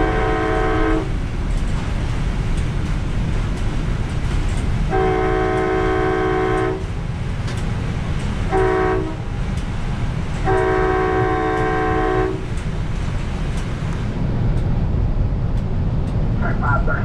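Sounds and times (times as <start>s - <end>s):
train air horn blasts: 0.0s - 1.2s, 4.9s - 6.9s, 8.5s - 9.2s, 10.4s - 12.5s
train rumbling on rails: 0.0s - 17.0s.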